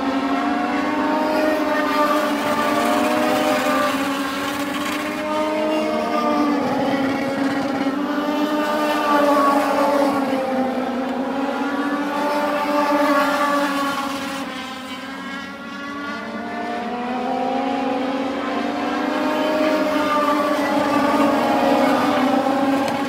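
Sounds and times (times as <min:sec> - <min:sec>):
race car engines passing: 0:00.0 - 0:23.0.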